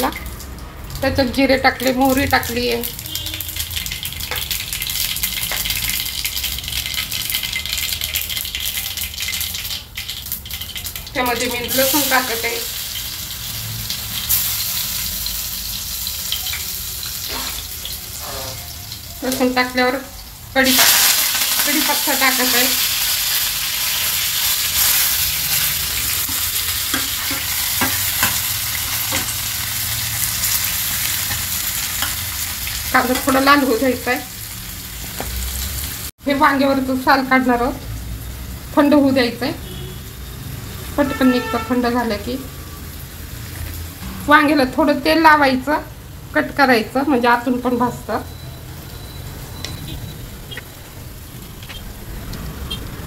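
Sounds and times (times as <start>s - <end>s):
seeds spluttering in hot oil: 0.0s - 1.1s, 1.8s - 19.7s, 20.3s - 36.1s.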